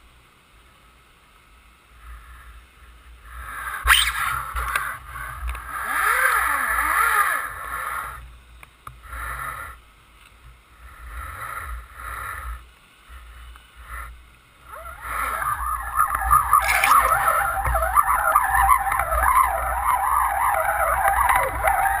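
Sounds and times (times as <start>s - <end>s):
boat engine and propeller underwater: 13.2s - 22.0s.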